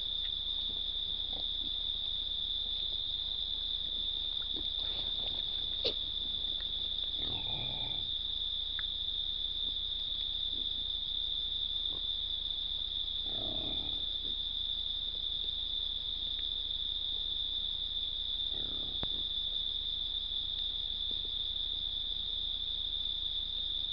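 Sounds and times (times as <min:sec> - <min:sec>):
crickets trilling: 0:00.0 - 0:23.9.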